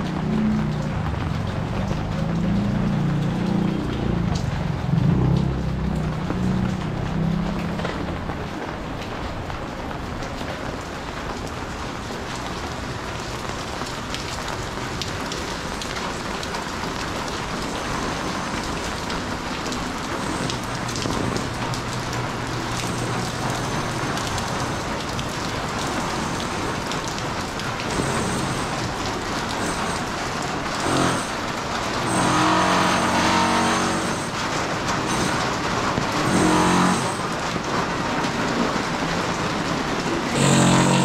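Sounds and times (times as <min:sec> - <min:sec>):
steady rain falling: 0:00.0 - 0:41.0
pitched mechanical sound: 0:17.8 - 0:37.8, 0:40.2 - 0:41.0.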